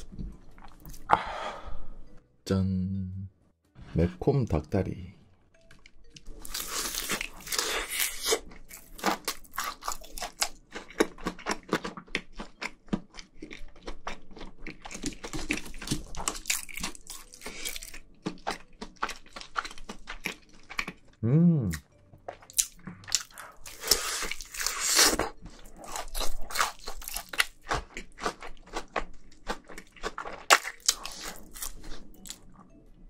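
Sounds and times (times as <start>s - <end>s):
crunching and chewing fried chicken: 6.2s - 21.2s, 21.8s - 32.7s
meat being torn: 25.9s - 31.8s.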